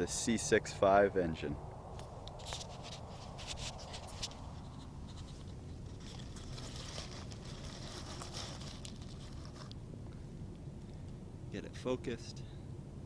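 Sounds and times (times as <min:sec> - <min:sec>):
phone rustling in grass: 0:01.9 - 0:09.8.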